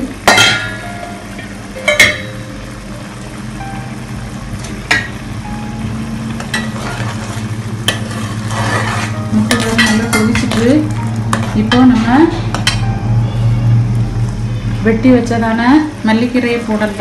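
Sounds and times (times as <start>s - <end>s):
low hum: 0.0s - 17.0s
ladle stirring thick gravy: 6.8s - 9.2s.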